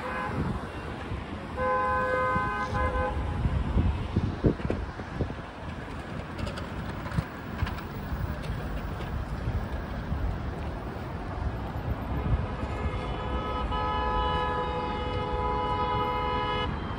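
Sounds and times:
vehicle horn honking: 0.0s - 0.8s, 1.6s - 3.4s, 12.8s - 16.9s
rumble of passing cars: 0.0s - 16.9s.

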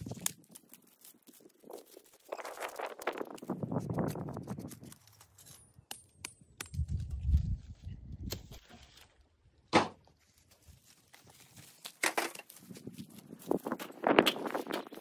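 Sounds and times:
footsteps on dry ground: 10.0s - 15.0s.

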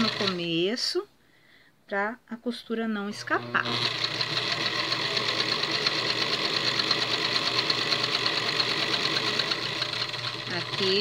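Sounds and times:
sewing machine stitching: 0.0s - 0.6s, 3.2s - 11.0s.

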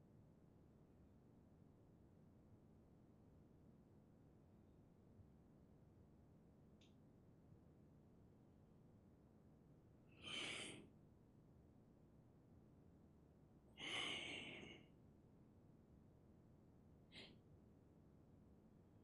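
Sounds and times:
person breathing: 10.1s - 10.8s, 13.8s - 14.9s.

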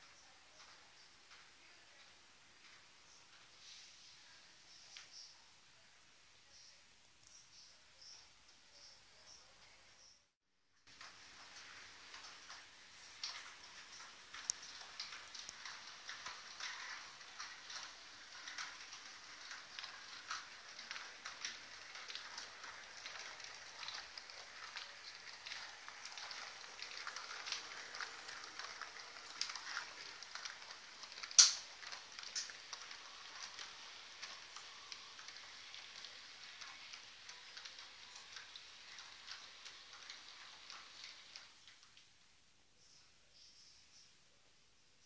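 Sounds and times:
model train wheels clicking on track: 0.0s - 3.8s, 10.9s - 42.1s.

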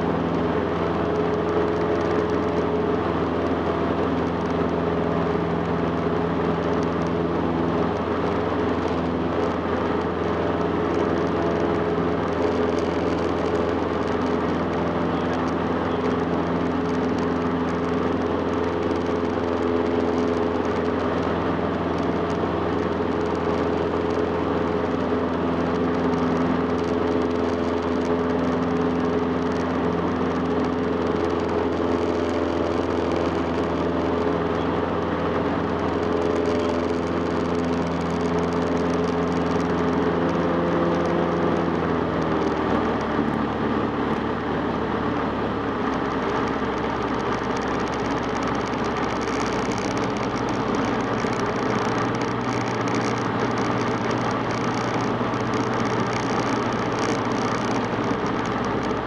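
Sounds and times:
plane engine and propeller: 0.0s - 59.0s
rushing wind: 0.0s - 59.0s.

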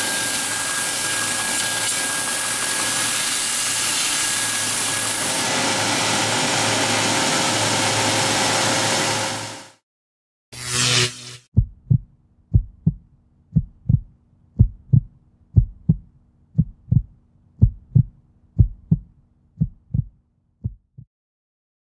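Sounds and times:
heartbeat thumps: 11.5s - 21.1s.

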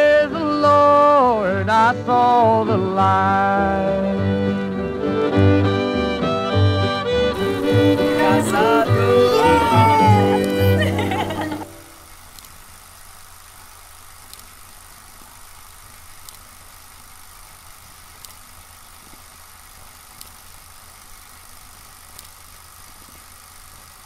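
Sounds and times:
low hum and hiss: 0.0s - 24.0s
faint sharp click: 18.2s - 18.4s.

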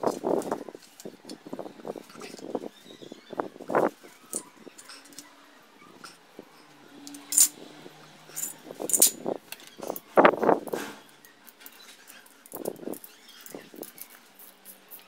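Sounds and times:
metal tools clinking on tiles: 4.3s - 5.3s, 6.0s - 7.6s, 8.3s - 10.0s, 11.4s - 15.0s.

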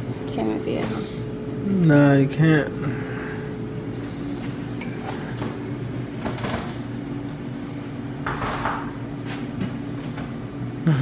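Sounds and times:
low appliance hum: 0.0s - 11.0s
bottles clattering in refrigerator: 5.0s - 6.9s.

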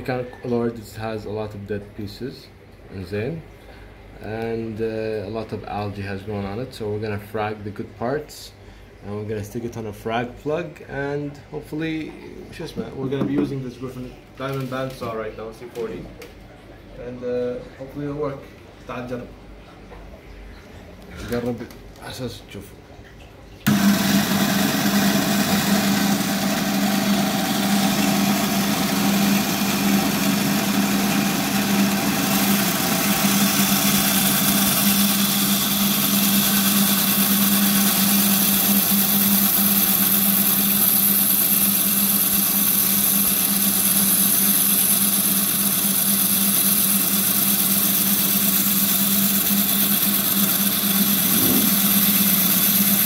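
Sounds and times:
band saw humming: 23.7s - 53.0s.

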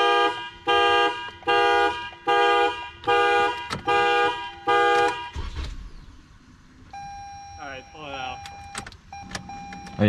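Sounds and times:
car horn honking: 0.0s - 5.6s.

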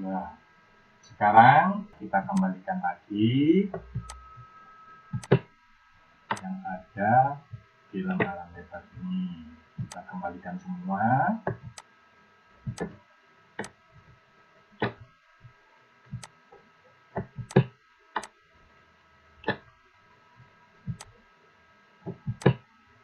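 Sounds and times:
faint electrical hum: 0.0s - 23.0s
computer mouse clicking: 3.8s - 4.2s, 5.2s - 5.4s, 9.8s - 10.0s, 11.5s - 11.9s, 12.7s - 13.0s, 17.2s - 18.3s, 20.9s - 21.1s, 22.1s - 22.6s.

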